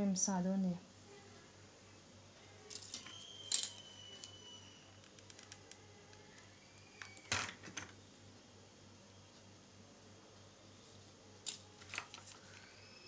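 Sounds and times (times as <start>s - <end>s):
plastic and paper rustling: 11.8s - 12.7s.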